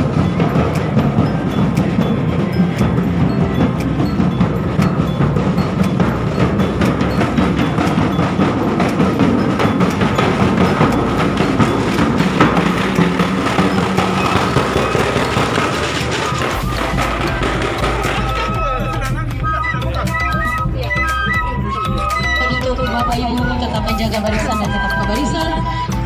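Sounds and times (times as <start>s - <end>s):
drum band playing: 0.0s - 26.0s.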